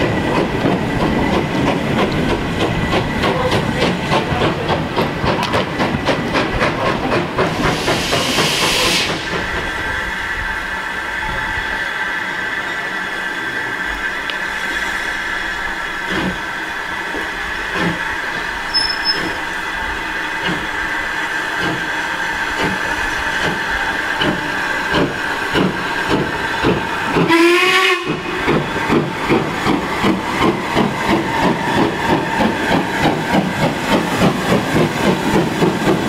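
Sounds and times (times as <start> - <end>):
steam engine exhaust beats: 0.0 - 10.1
steam hissing: 0.0 - 36.0
steam whistle blast: 18.7 - 19.4, 27.3 - 28.2.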